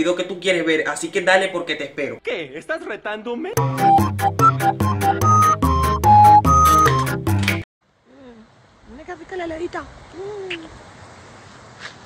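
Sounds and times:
background music with quick beat: 3.6 - 7.6.

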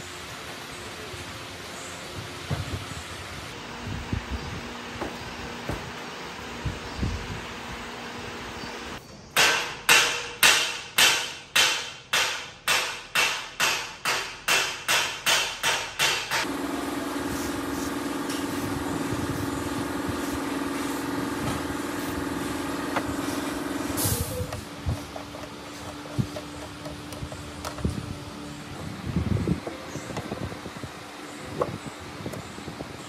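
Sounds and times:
steady low hum: 16.3 - 33.0.

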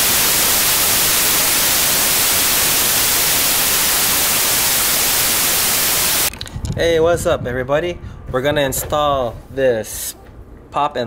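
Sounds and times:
tv static hiss: 0.0 - 6.3.

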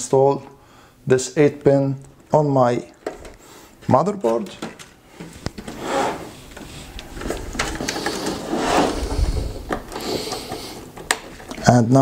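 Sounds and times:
cables rustling: 2.9 - 11.9.

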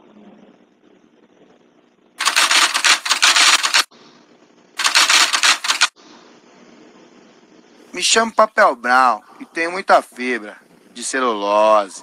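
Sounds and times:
rapid mechanical clicking: 2.2 - 3.9, 4.8 - 6.0.

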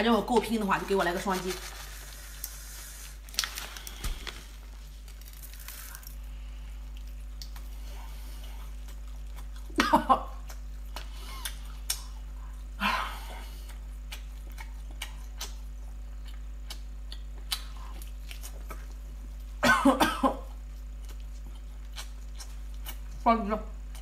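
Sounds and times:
woman chewing food: 2.2 - 19.6, 20.3 - 23.2
woman coughing: 19.6 - 20.5.

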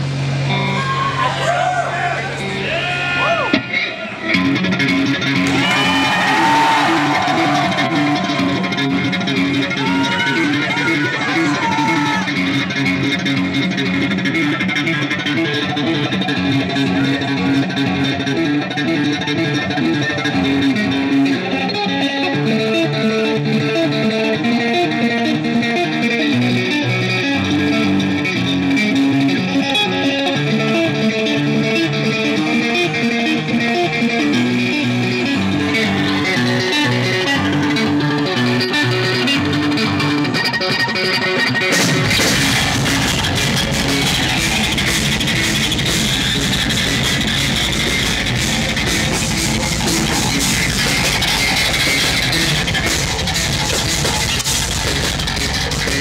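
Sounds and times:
low guitar notes: 0.0 - 56.0
fast electric guitar run: 3.7 - 56.0.

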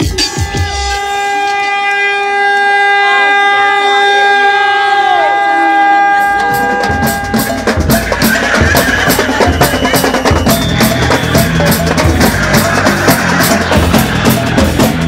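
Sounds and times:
drums beating fast rhythm: 0.0 - 1.4, 6.1 - 15.0
deep bass line: 6.1 - 15.0.

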